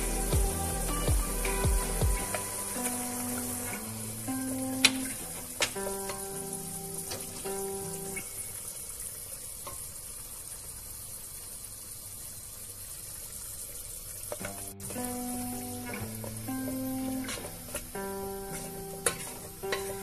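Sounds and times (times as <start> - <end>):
plucked guitar music: 0.0 - 8.5, 14.4 - 20.0
stew sizzling in a pot: 0.0 - 20.0.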